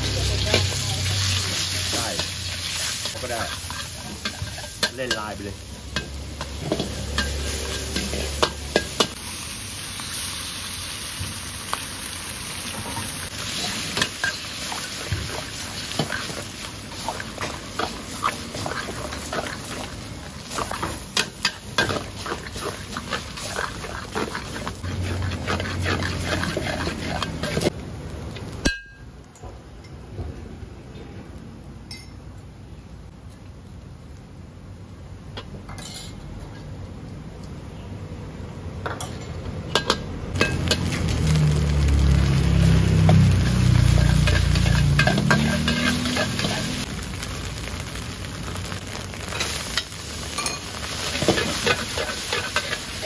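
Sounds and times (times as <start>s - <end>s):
meat and egg sizzling in a wok: 0.0s - 28.8s, 39.7s - 53.0s
metal spatula scraping a wok: 0.1s - 9.2s, 12.7s - 27.7s, 39.1s - 41.3s, 42.2s - 46.9s, 49.3s - 53.0s.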